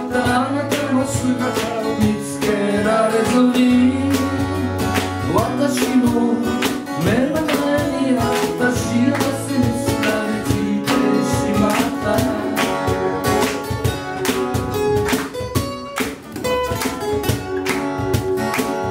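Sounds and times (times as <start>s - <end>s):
man singing: 0.0s - 13.5s
acoustic guitars strummed: 0.0s - 18.9s
cajon beat: 0.0s - 18.9s.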